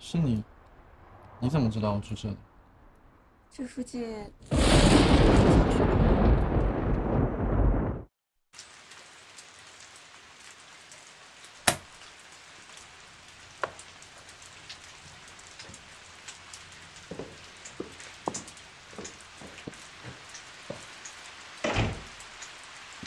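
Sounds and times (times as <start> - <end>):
rain hissing: 4.4 - 8.0, 8.6 - 23.0
water dripping: 8.6 - 23.0
sharp knocks: 11.7 - 11.9.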